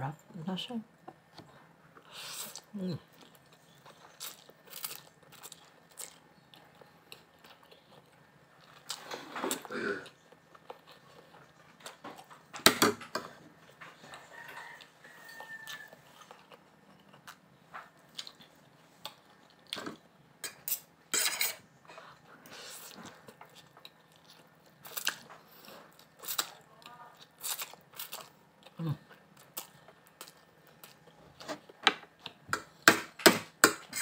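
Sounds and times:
person slurping and chewing noodles: 20.6 - 31.6.

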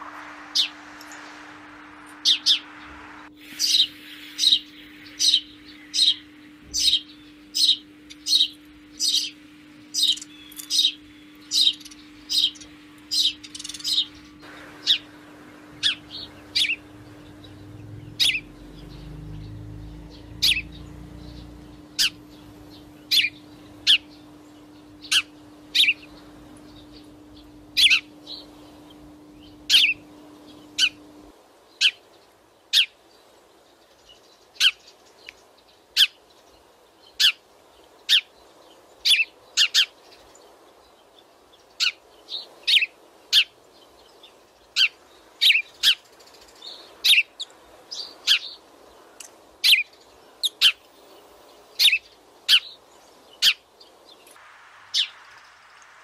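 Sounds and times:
faint low hum: 0.0 - 32.4
sparrows chirping: 0.0 - 55.7.

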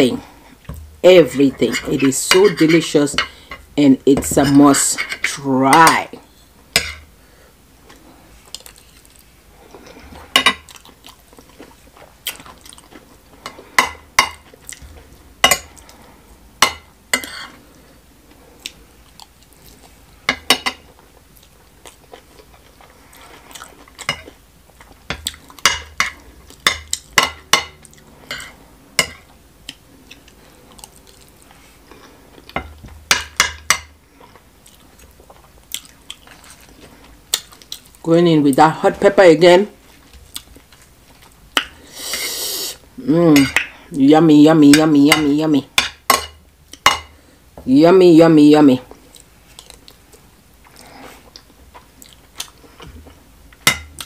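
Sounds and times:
chewing: 7.9 - 10.0, 10.6 - 13.7, 18.6 - 20.0, 21.0 - 25.6, 29.7 - 32.6, 34.1 - 38.0, 48.9 - 53.2.

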